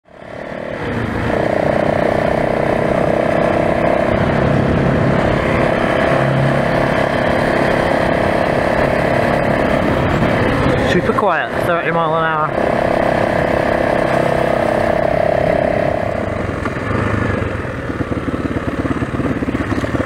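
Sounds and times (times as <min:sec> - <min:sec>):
motorcycle engine running: 0:00.0 - 0:20.0.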